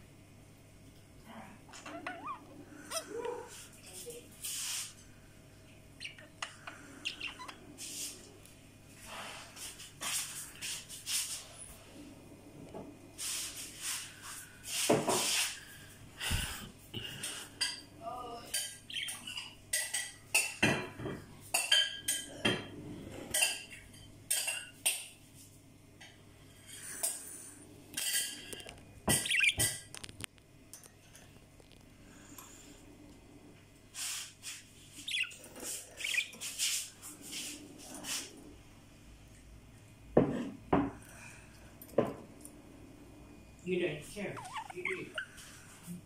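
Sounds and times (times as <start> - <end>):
soft bird chirps: 6.0 - 7.6, 18.9 - 19.6, 29.2 - 29.8, 34.9 - 36.5, 44.2 - 45.4
bird beak clicks and feather rustles: 34.0 - 38.3.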